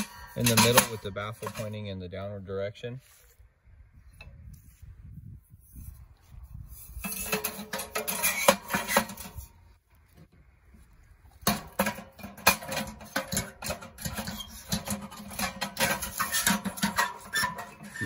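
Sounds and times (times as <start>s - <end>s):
metal stovepipe clanking and scraping: 0.0s - 1.8s, 6.5s - 9.5s, 11.4s - 18.0s.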